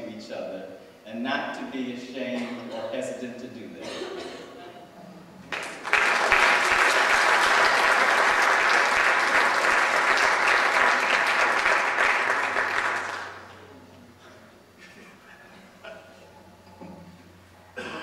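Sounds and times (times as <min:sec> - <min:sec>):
audience clapping: 0:05.5 - 0:13.7.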